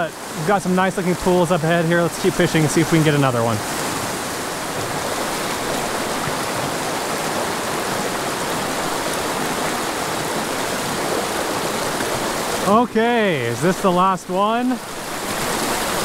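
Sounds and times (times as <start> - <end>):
creek running over rocks: 0.0 - 16.0.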